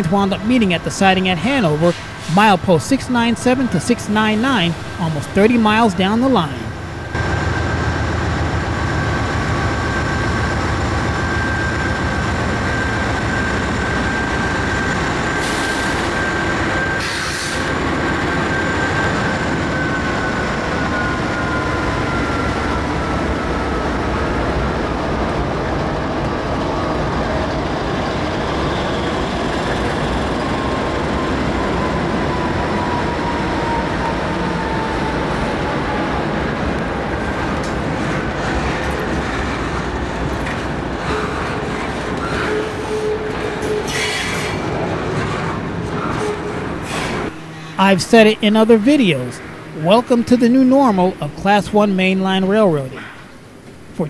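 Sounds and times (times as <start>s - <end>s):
diesel locomotive engines running: 0.0s - 54.0s
wheels rumbling on rails: 6.5s - 47.8s
wheel squeal: 41.0s - 44.7s.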